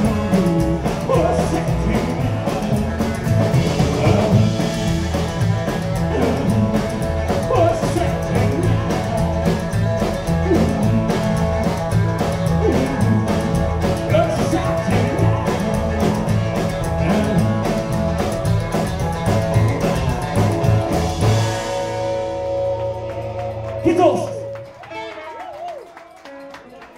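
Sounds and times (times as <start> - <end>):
lead vocal singing: 0.0 - 9.2, 10.2 - 11.8, 12.4 - 18.1
upright bass: 0.0 - 25.2
acoustic and electric guitars: 0.0 - 26.9
drums: 0.0 - 26.9.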